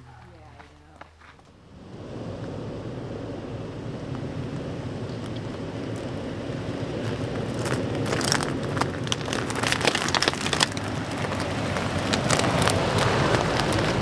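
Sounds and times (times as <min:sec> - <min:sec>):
tyres crunching over dirt and stones: 0:00.0 - 0:01.6, 0:04.1 - 0:14.0
vehicle engine rumbling: 0:00.0 - 0:14.0.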